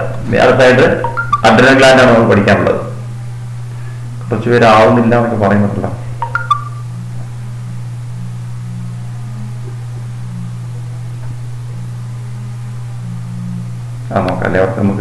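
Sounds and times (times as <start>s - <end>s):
steady low hum: 0.0s - 15.0s
faint wavering drone: 6.3s - 14.1s.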